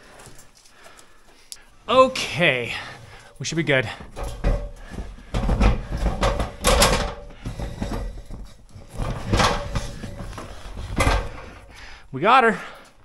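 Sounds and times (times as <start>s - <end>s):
plastic case scraping against ladder: 4.1s - 11.7s.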